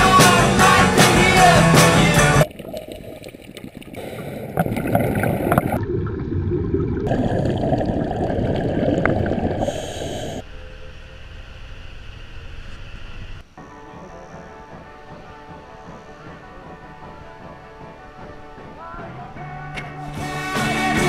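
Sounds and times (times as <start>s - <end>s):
underwater bubbles gurgling: 2.4s - 10.4s.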